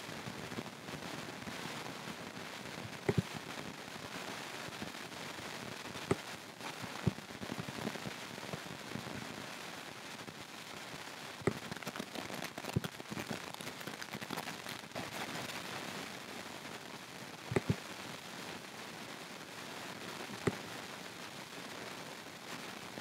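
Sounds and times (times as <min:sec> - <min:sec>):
steady hiss: 0:00.0 - 0:23.0
sharp clicks and crackles: 0:02.8 - 0:03.4, 0:11.4 - 0:14.5, 0:17.5 - 0:17.8.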